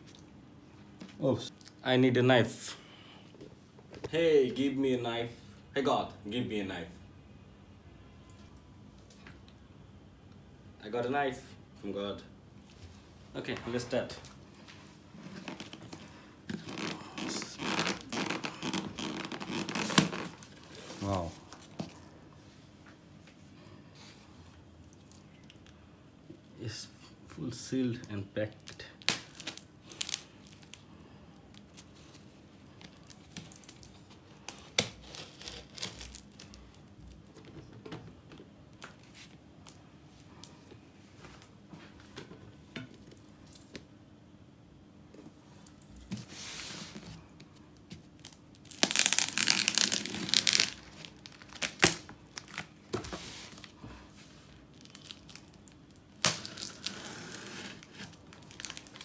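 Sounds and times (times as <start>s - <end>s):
packing tape tearing: 16.5s - 21.2s, 29.0s - 30.8s, 32.8s - 36.6s, 48.2s - 52.7s, 54.7s - 59.0s.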